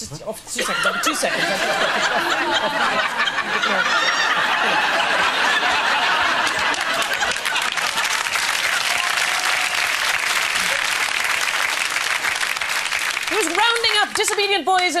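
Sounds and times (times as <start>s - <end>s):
audience laughing: 0.6s - 8.8s
audience clapping: 1.9s - 15.0s.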